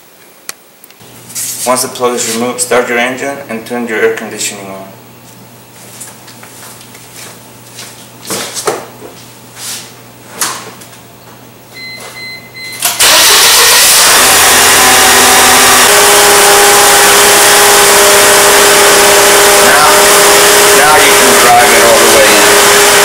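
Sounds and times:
short beep: 0:11.8 - 0:12.9
car engine starting and idling: 0:12.8 - 0:23.0.

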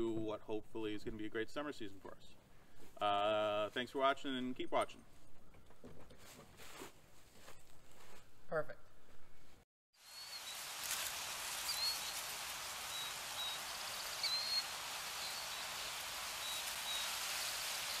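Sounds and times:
high bird chirps: 0:10.0 - 0:10.6, 0:11.6 - 0:18.0
rain-like hiss: 0:10.0 - 0:18.0.

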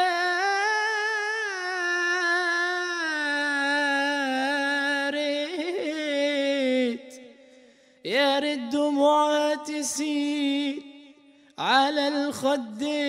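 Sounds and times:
man singing unaccompanied: 0:00.0 - 0:07.3, 0:08.1 - 0:13.0.

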